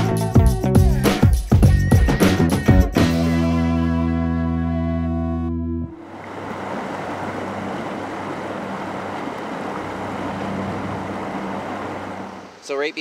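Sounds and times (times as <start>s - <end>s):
low motor hum: 5.0s - 12.6s
water rushing over rocks: 6.0s - 13.0s.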